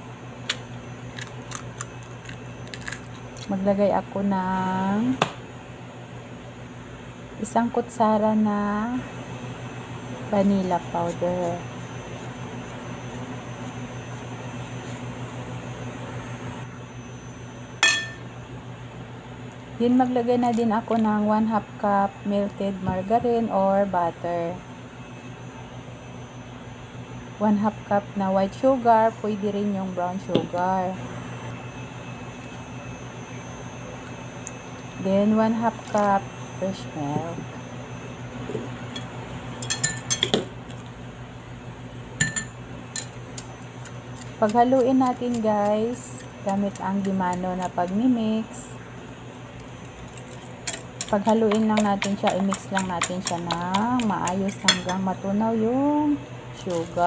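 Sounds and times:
low hum with hiss: 0.0s - 57.0s
metal spoon clinking glass bowl: 17.8s - 18.2s, 50.6s - 55.0s
fork clinking on glass bowl: 54.5s - 55.0s.

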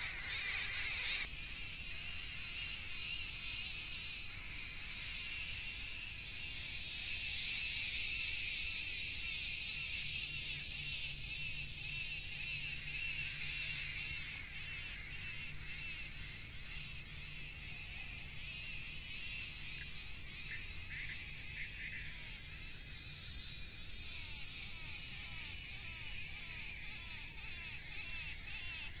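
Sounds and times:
insect chorus: 0.0s - 29.0s.

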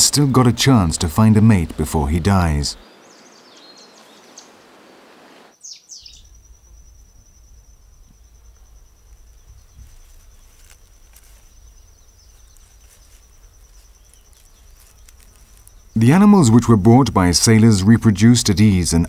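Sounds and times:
low wind rumble: 0.0s - 19.0s
high insect trill: 0.1s - 19.0s
bird call with downward sweeps: 2.8s - 6.4s.

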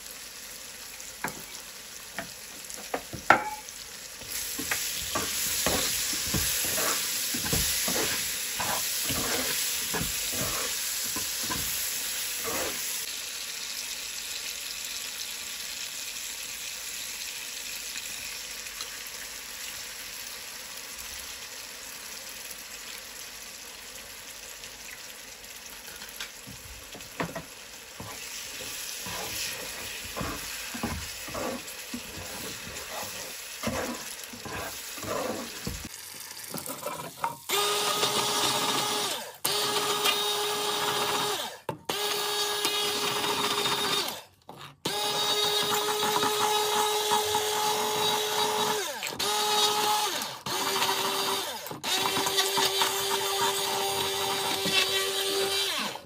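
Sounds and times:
sauce simmering in a pan: 0.0s - 37.4s
ladle stirring and scraping: 4.4s - 11.7s, 12.4s - 13.0s, 28.0s - 35.9s
stick blender motor whine: 5.1s - 11.6s, 12.4s - 12.8s, 28.0s - 35.9s, 37.5s - 56.0s.

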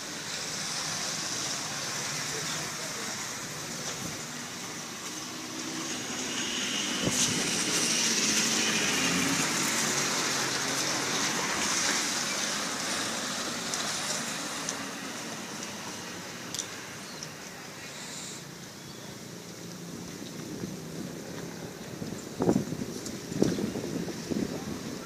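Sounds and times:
car passing: 0.0s - 25.0s.

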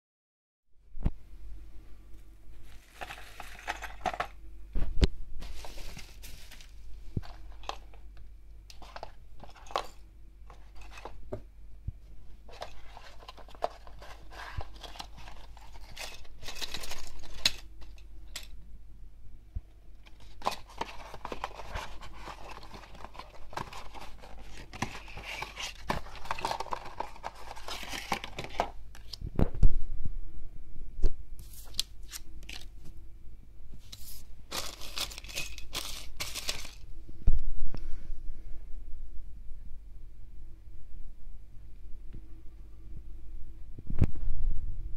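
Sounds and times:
packaging rustling and tearing: 2.6s - 4.3s, 5.4s - 8.0s, 12.5s - 17.7s, 20.1s - 29.2s, 34.0s - 36.9s.

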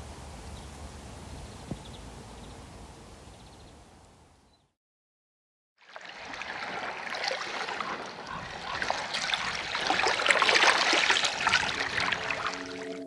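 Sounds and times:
water trickling and splashing: 5.8s - 13.0s.

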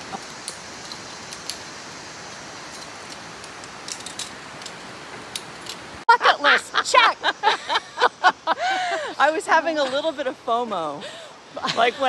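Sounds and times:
waterfall rushing: 0.0s - 12.0s
metal carabiners clinking: 2.6s - 5.9s.

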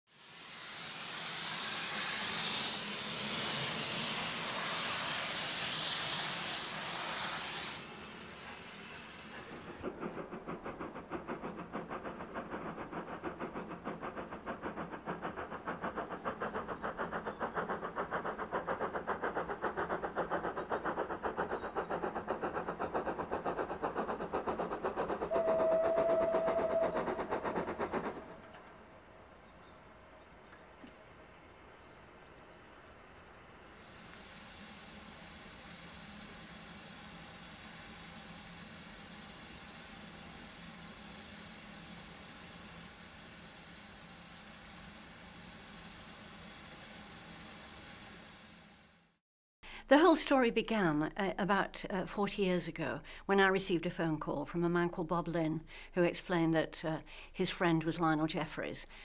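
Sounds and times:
steam hissing: 0.1s - 29.5s, 33.6s - 51.0s, 51.6s - 59.0s
steam train rhythmic beat: 0.2s - 28.6s
train whistle: 25.2s - 27.3s.

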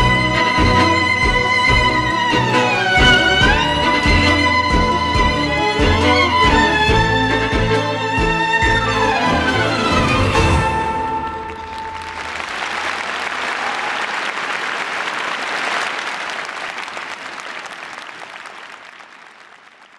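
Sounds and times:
tango music with violin: 0.0s - 11.9s
audience applauding: 0.0s - 19.9s.

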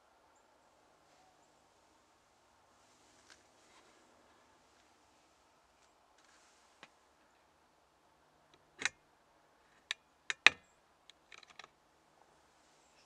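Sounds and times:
sharp clicks and knocks: 9.8s - 11.7s.

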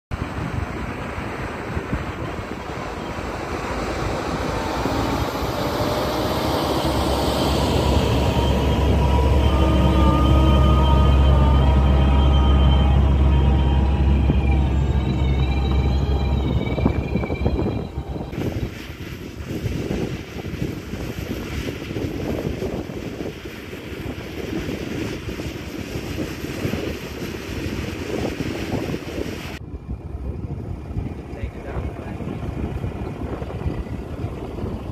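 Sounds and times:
diesel tractor engine rumbling: 0.1s - 34.9s
wind buffeting microphone: 0.1s - 34.9s
tractor working soil: 0.2s - 17.2s.

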